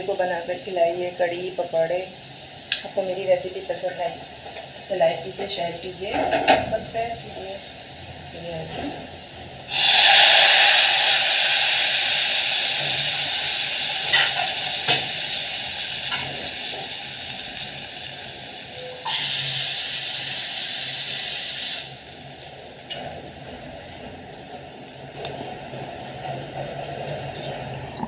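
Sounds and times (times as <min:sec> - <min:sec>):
hot oil sizzling: 0:09.5 - 0:26.2.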